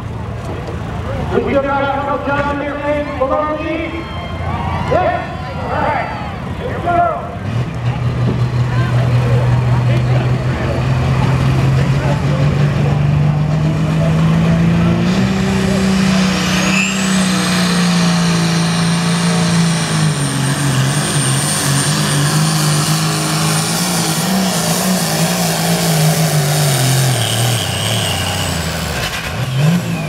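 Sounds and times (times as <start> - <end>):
tractor diesel engine at full throttle: 0.0 - 30.0
turbo whistle: 16.1 - 17.9, 27.2 - 28.6.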